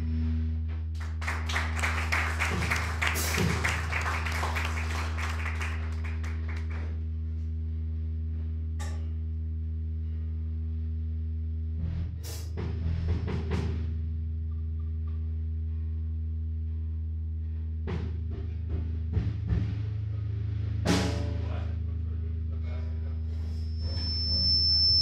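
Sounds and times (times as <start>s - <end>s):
steady low hum: 0.0s - 25.0s
small audience clapping: 0.9s - 7.1s.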